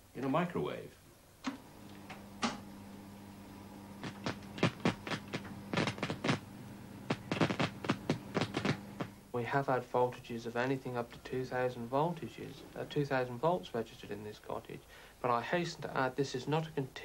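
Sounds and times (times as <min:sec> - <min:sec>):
microwave oven humming: 0:01.2 - 0:09.3
microwave switch click: 0:01.4 - 0:02.7
sharp crackling snaps of burning: 0:04.0 - 0:09.2.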